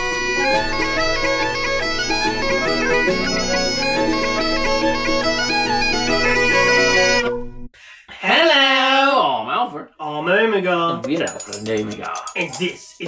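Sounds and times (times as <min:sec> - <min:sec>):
bagpipe melody over drone: 0:00.0 - 0:07.5.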